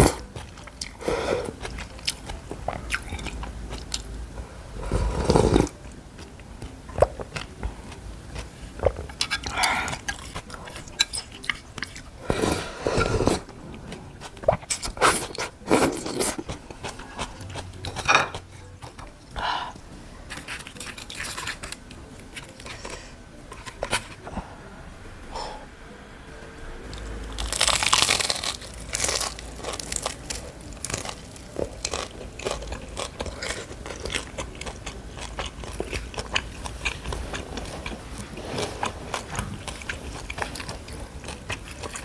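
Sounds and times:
person slurping soup: 4.8 - 5.8, 12.2 - 17.4
mouth clicks and chewing: 27.4 - 42.0.

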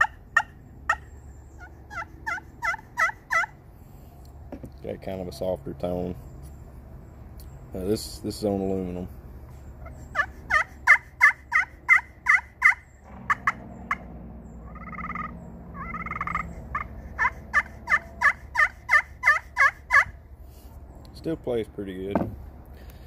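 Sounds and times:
turkey call clucks: 0.0 - 3.6, 9.8 - 14.0, 14.7 - 20.2
turkey call yelps: 0.0 - 3.6, 9.8 - 14.0, 14.7 - 20.2
turkey call purrs: 9.9 - 20.1.

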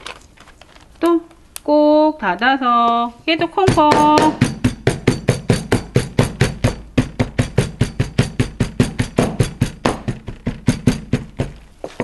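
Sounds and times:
rolling pin knocking walnuts: 3.6 - 12.0.

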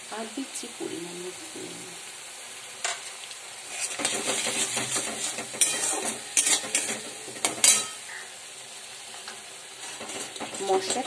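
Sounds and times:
spice paste sizzling in oil: 0.0 - 11.0
spatula scraping a pan: 3.6 - 8.2, 9.1 - 11.0.

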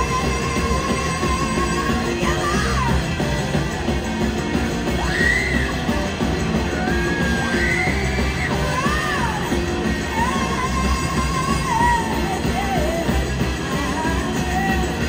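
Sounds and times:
woman's vocal shouts and singing: 0.0 - 3.7, 6.8 - 15.0
live rock band playing: 0.0 - 15.0.

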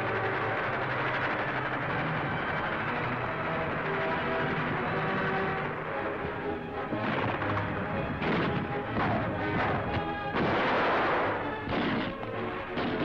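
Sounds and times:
orchestral music: 0.0 - 13.0
gunfire and field-gun shots: 5.1 - 13.0.

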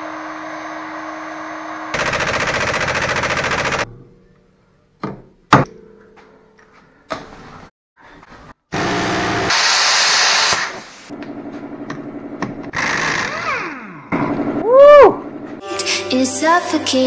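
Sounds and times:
impact wrench spinning: 2.0 - 3.9
hissing exhaust air: 9.4 - 11.1.

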